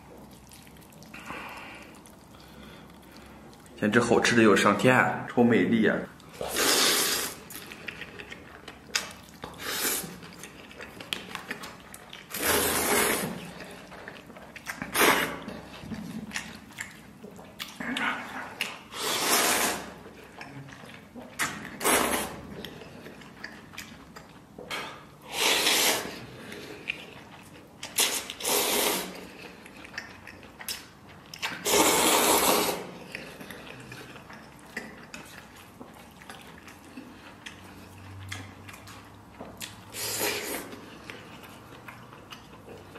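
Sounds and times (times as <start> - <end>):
chewing: 0.0 - 5.4, 6.1 - 42.9
person slurping noodles: 6.4 - 7.6, 9.6 - 10.2, 12.3 - 13.6, 14.9 - 15.7, 18.8 - 20.0, 21.8 - 22.5, 25.2 - 26.7, 28.0 - 29.4, 31.6 - 33.0, 39.9 - 40.8.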